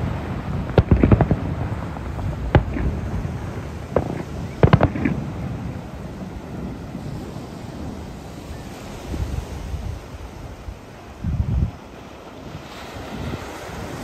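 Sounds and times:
firework shells bursting: 0.0s - 7.2s.

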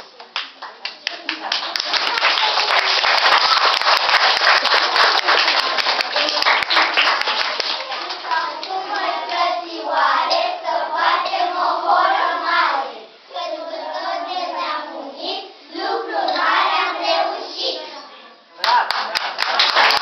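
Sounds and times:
children singing together: 7.9s - 18.2s.

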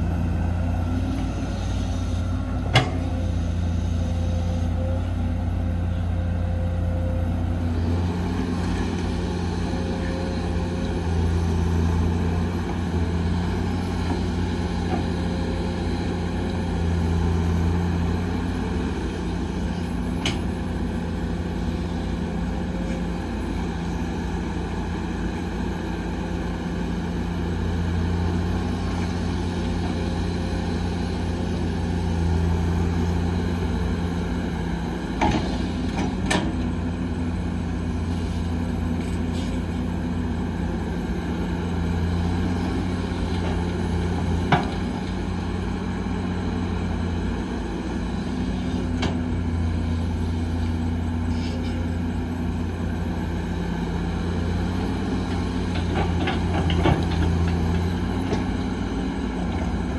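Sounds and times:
diesel machinery engine drone: 0.0s - 59.9s.

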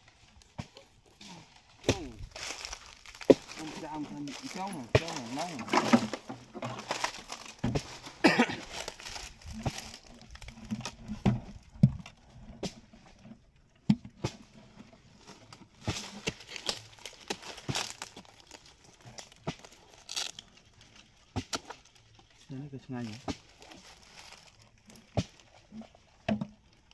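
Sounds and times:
palm fibres tearing and crackling: 0.0s - 13.4s, 15.2s - 26.9s
sharp snaps and knocks: 15.8s - 20.4s, 21.3s - 21.9s.

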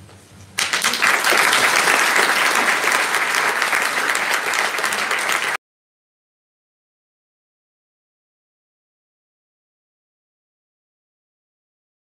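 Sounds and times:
audience applauding: 0.6s - 5.6s.

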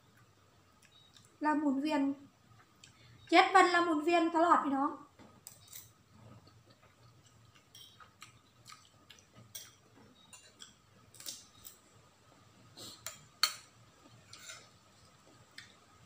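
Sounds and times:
chewing: 5.5s - 9.8s
spoon clinking on ceramic bowl: 7.7s - 8.1s.

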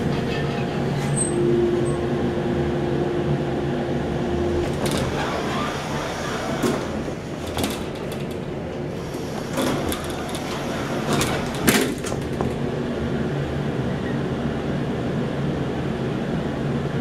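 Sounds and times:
elevator door clunk: 0.0s - 2.2s, 4.3s - 13.0s
elevator doors sliding shut: 0.0s - 14.4s
door gear clicks and rattles: 6.6s - 8.6s, 9.5s - 12.7s.

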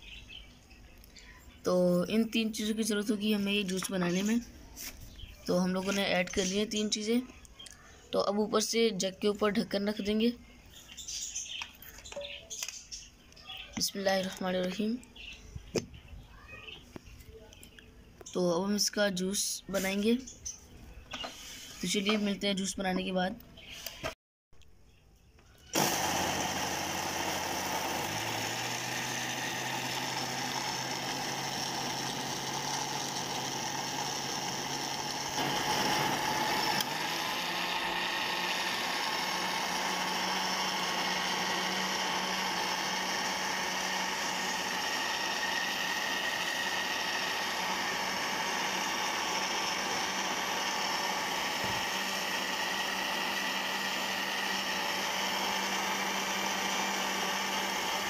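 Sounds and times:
electric blender motor: 25.7s - 58.0s.

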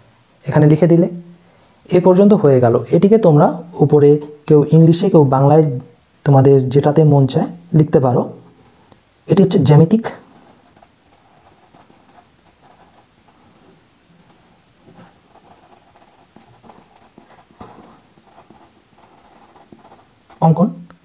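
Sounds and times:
pen scratching on paper: 10.3s - 20.6s.

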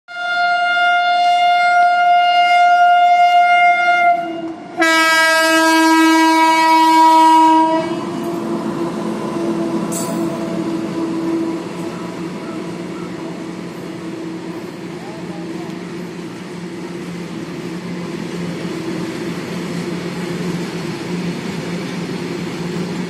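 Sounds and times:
locomotive horn blasts: 0.1s - 8.4s
train wagons rumbling past: 2.8s - 23.0s.

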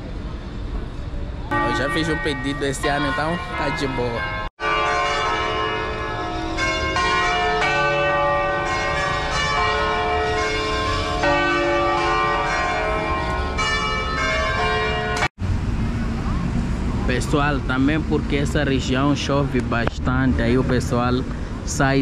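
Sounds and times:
church bells ringing: 1.5s - 15.3s.

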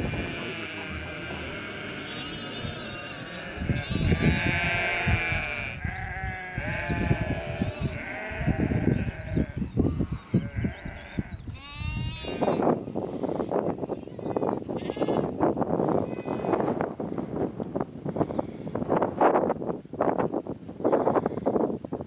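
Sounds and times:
sheep and lambs bleating: 0.0s - 16.8s.

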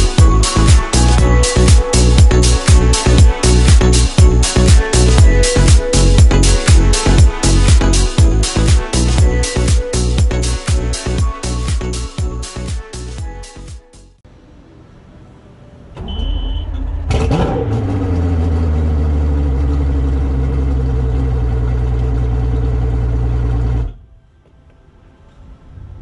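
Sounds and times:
high beep: 16.0s - 16.9s
outboard engine cranking and idling: 16.3s - 24.0s.

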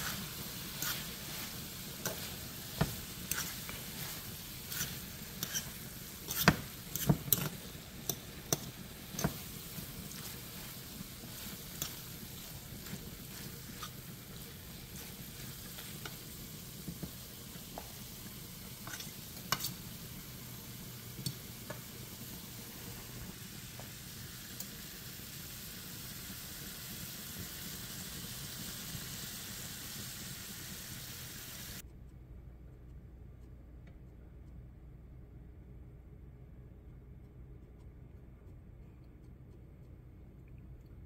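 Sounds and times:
food sizzling in a frying pan: 0.0s - 31.8s.

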